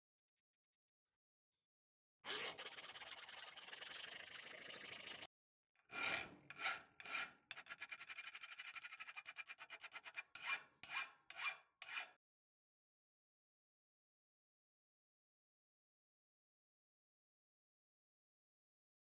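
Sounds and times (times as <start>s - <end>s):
files rasping on steel: 2.3s - 3.9s, 5.8s - 12.2s.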